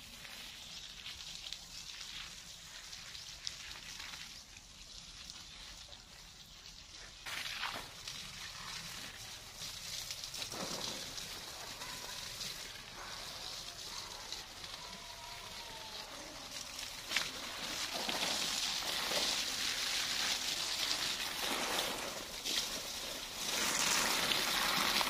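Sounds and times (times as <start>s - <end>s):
hose water spraying on plants: 0.0s - 25.0s.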